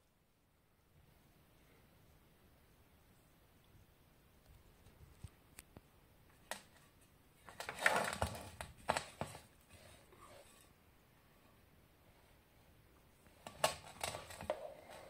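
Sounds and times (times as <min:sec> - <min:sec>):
rustling and scraping: 0:06.3 - 0:10.8, 0:13.2 - 0:15.0.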